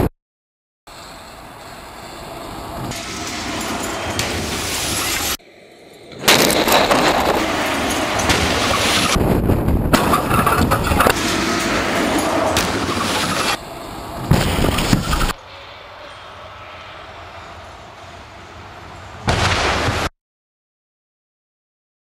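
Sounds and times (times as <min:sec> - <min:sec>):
heavy trucks rumbling: 0:00.9 - 0:20.0
sharp bangs: 0:02.8 - 0:05.4, 0:06.1 - 0:20.1.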